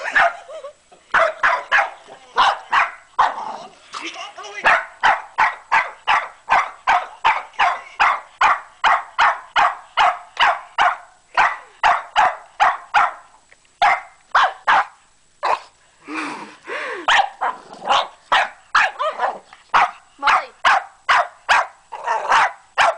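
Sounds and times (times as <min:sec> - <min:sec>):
dog barking rapidly: 0:01.1 - 0:03.5, 0:04.6 - 0:15.6, 0:17.1 - 0:22.9
dog growling: 0:03.3 - 0:03.9, 0:21.9 - 0:22.4.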